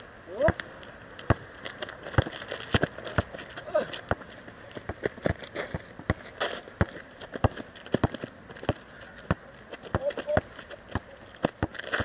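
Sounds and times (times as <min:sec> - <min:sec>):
sneakers scuffing on grit: 0:00.5 - 0:12.0
basketball bouncing on court: 0:06.8 - 0:12.0.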